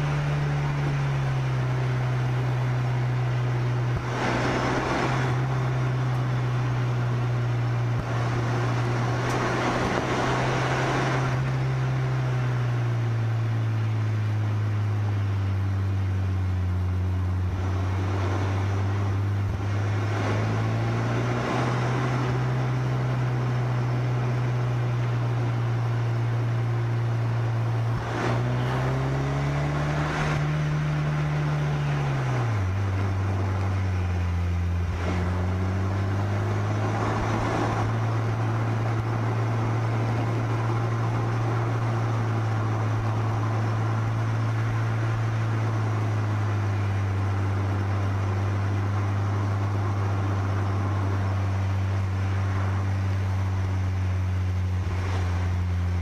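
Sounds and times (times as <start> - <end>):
car engine running: 0.0 - 56.0
wind and road noise: 0.0 - 56.0.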